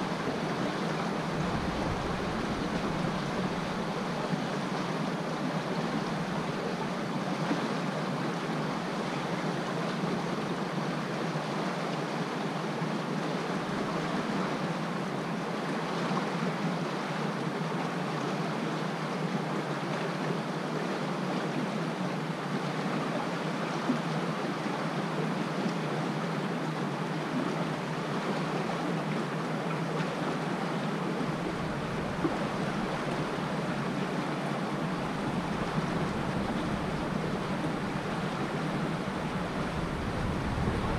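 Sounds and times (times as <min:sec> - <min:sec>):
river water lapping on stone: 0:00.0 - 0:08.6, 0:25.8 - 0:40.9
low rumble: 0:01.2 - 0:04.4, 0:34.8 - 0:40.9.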